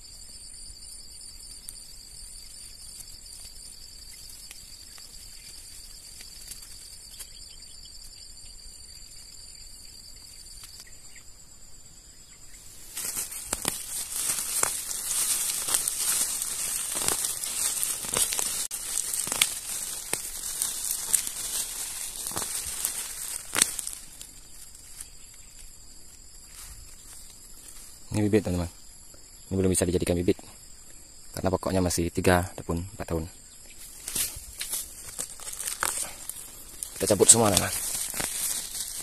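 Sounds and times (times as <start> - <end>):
rustling leaves: 0.0 - 11.4, 12.4 - 29.0, 32.7 - 39.0
high insect drone: 0.0 - 39.0
plants pulled from soil: 12.6 - 25.7, 33.8 - 39.0
roots snapping: 12.9 - 25.1, 34.0 - 39.0.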